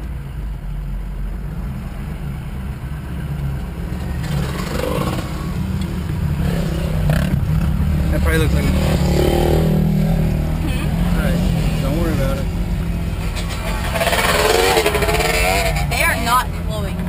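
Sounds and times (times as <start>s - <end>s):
truck engine rumbling: 0.0s - 17.0s
dirt bike engine passing: 4.1s - 17.0s.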